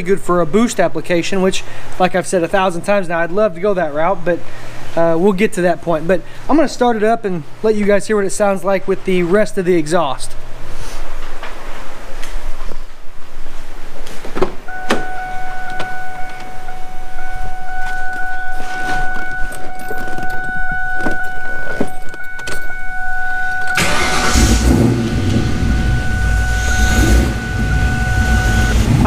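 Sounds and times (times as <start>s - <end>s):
car engine starting and idling: 14.7s - 29.0s
car warning tone: 14.7s - 29.0s.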